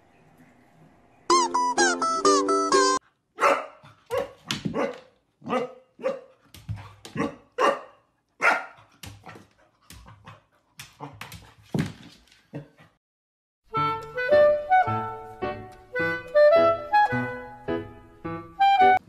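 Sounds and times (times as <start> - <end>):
puppy yapping barks: 3.4 - 6.3, 7.2 - 8.8.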